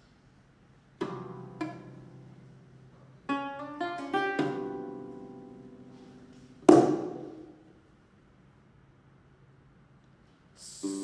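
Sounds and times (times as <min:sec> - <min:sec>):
lute plucked notes and chords: 0:01.0 - 0:07.0.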